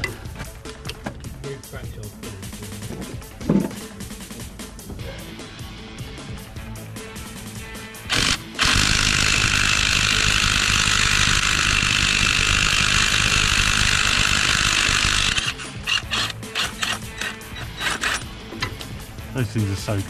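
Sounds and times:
impact wrench hammering: 0:08.1 - 0:18.8.

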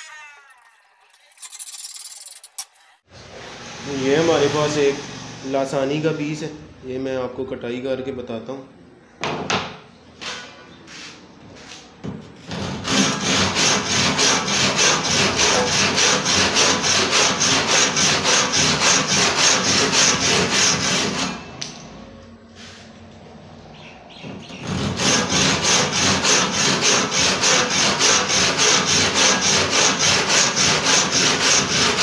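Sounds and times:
hand saw cutting board: 0:03.2 - 0:05.6, 0:12.4 - 0:21.5, 0:24.4 - 0:32.0.

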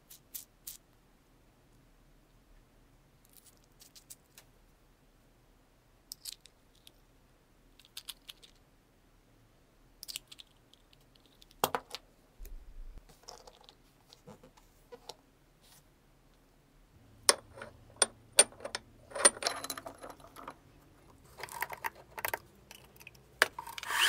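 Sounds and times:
metal bolt clicking and rattling: 0:17.3 - 0:20.6.

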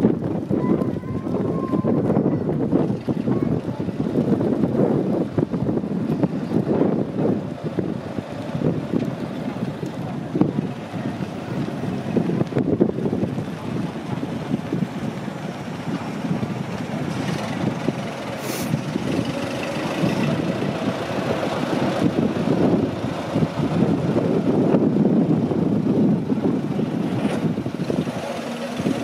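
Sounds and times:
bus engine rumbling: 0:00.0 - 0:29.0.

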